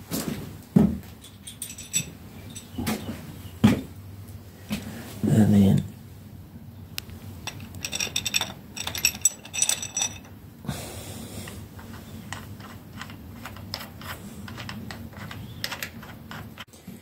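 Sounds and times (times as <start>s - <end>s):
small steel parts clinking: 1.2s - 2.8s, 7.4s - 10.4s.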